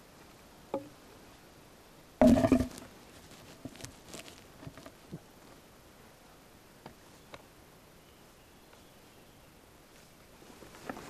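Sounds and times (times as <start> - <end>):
wooden clatter: 2.2 - 2.8
wooden branches knocking: 2.2 - 2.9
rustles: 2.2 - 7.6, 8.2 - 11.0.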